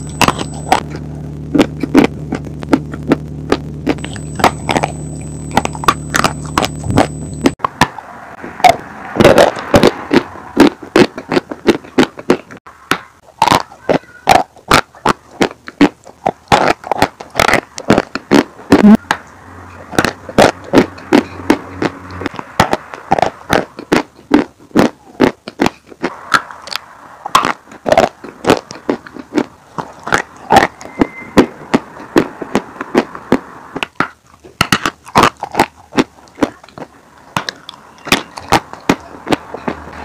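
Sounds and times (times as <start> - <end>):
chalk being chewed: 14.3 - 19.0, 19.9 - 39.8.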